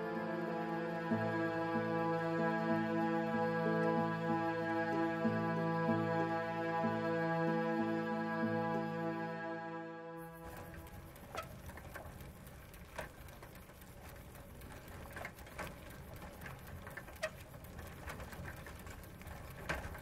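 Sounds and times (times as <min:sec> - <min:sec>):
bicycle chain clicks: 0:10.4 - 0:20.0.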